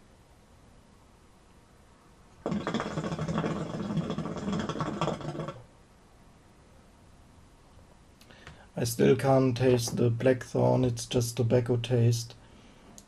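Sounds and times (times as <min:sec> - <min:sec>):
hookah water bubbling: 0:02.4 - 0:05.7.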